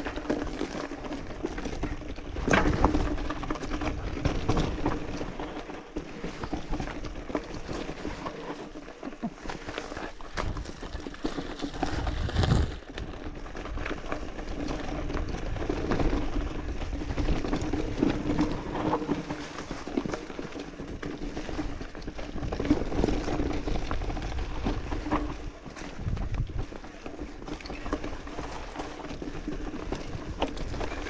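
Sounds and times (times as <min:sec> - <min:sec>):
bike rattling and knocking: 0:00.0 - 0:31.0
bike tyres crunching over stones: 0:00.0 - 0:31.0.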